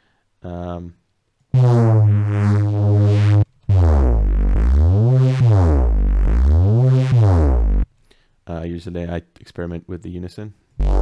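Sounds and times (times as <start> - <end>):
gliding synth bass line: 1.6 - 7.8, 10.8 - 11.0
synth bass note: 1.6 - 7.8, 10.8 - 11.0.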